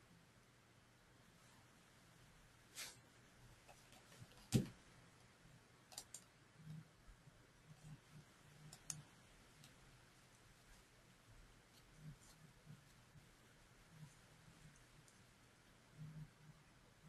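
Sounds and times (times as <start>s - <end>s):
computer mouse clicks: 5.9s - 6.8s, 8.6s - 9.8s.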